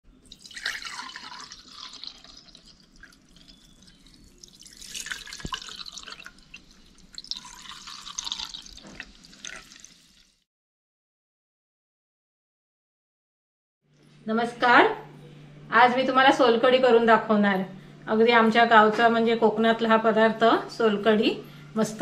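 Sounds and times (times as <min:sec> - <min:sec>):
drink pouring into steel tumblers: 0:00.2 - 0:10.4.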